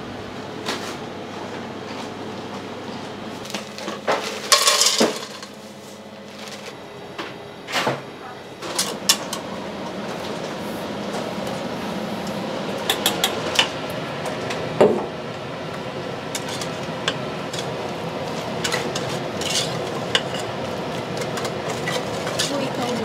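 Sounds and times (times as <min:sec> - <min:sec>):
utensils clinking and clattering: 0:03.8 - 0:05.6, 0:16.4 - 0:23.0.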